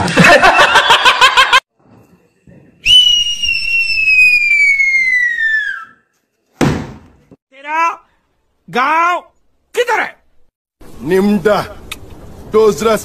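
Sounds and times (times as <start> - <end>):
cartoon falling whistle: 2.8 - 6.0.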